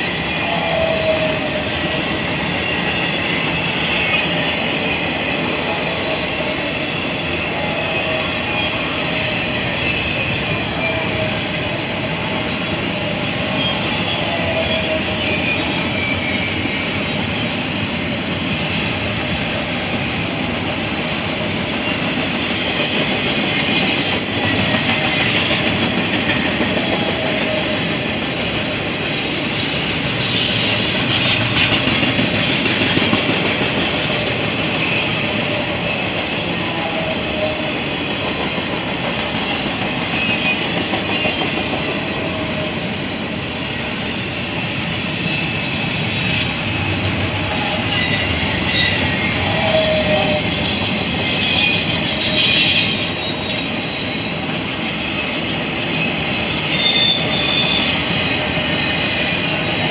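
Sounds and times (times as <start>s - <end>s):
freight train wheels rumbling: 0.0s - 59.9s
high wheel squeals: 20.2s - 31.8s, 43.3s - 46.9s, 47.6s - 59.9s.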